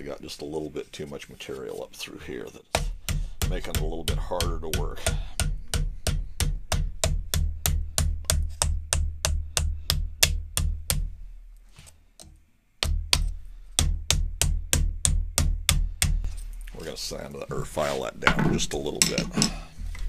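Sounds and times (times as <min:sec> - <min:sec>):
mallet hammering metal rod: 0:02.8 - 0:11.1, 0:12.8 - 0:16.2.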